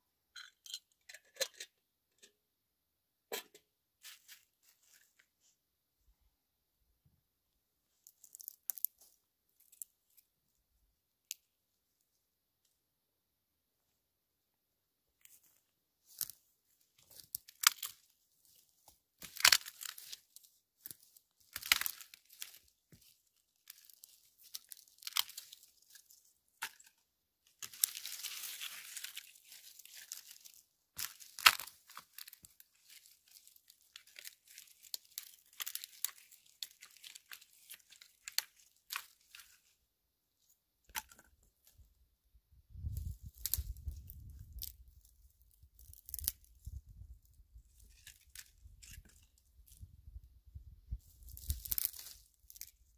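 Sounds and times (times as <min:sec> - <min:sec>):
dry wood cracking and snapping: 0:17.1 - 0:18.1, 0:19.2 - 0:20.2, 0:20.8 - 0:26.9, 0:27.6 - 0:39.4, 0:42.8 - 0:49.9, 0:51.0 - 0:52.9
brush rustling: 0:27.6 - 0:39.7.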